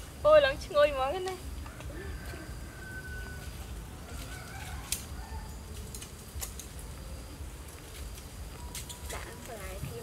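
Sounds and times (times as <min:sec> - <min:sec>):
chickens crowing and clucking: 0:01.5 - 0:06.1.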